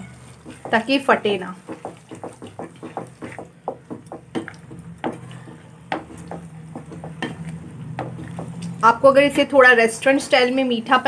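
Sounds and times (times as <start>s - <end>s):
spatula scraping a pan: 0.0s - 3.6s, 4.9s - 8.6s.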